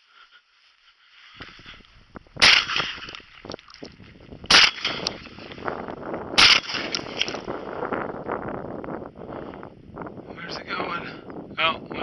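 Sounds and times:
shotgun shots: 2.4 - 3.0, 4.5 - 5.3, 6.4 - 7.2.

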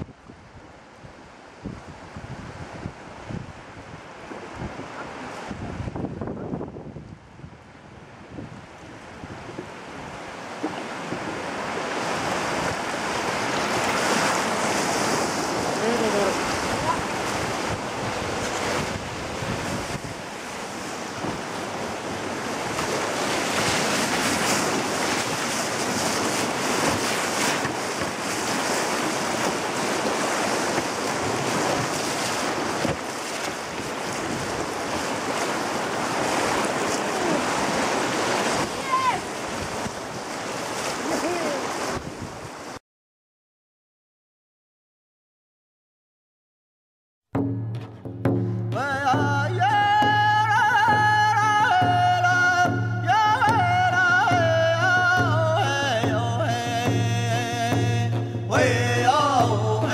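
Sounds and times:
wind noise on microphone: 0.0 - 41.0, 41.7 - 42.8
river rapids rushing and splashing: 0.7 - 6.0, 7.7 - 42.8.

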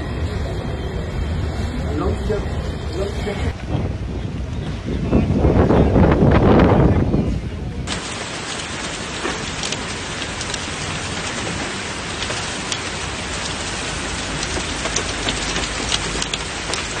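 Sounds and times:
rain and wind hiss: 7.8 - 17.0
raindrops tapping: 7.9 - 17.0.

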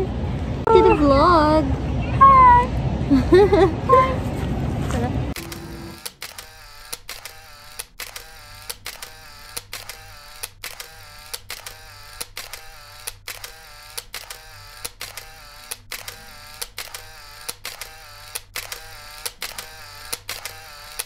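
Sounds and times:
short whirring tone: 5.4 - 9.3
camera shutter clicking: 5.4 - 21.0.

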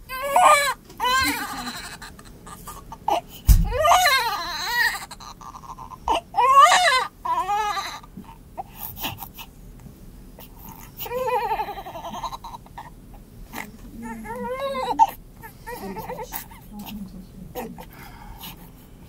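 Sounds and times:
baby crying: 0.1 - 8.1, 10.6 - 12.6, 14.0 - 16.5
low thump: 3.5 - 3.9.

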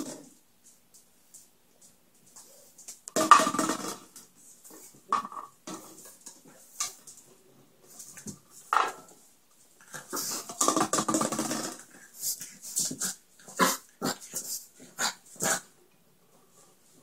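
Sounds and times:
plastic bottle clattering on tiles: 3.1 - 4.3, 5.1 - 7.1, 8.1 - 9.1, 10.2 - 12.0.

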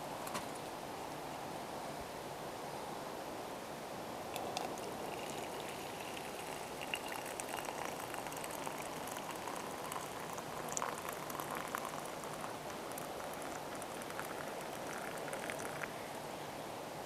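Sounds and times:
drink pouring into metal mug: 4.3 - 15.9.

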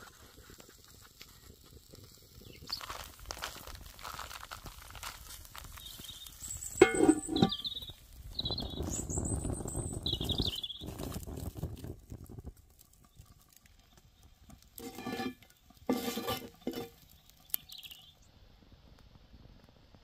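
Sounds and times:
wood fire crackling: 0.0 - 20.0
small birds chirping: 2.2 - 3.1, 5.6 - 11.2, 16.6 - 18.3.

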